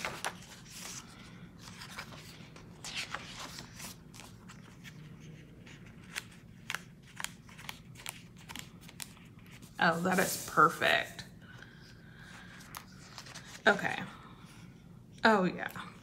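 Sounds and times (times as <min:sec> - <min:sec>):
paper rustling: 0:00.0 - 0:11.1, 0:12.4 - 0:13.9.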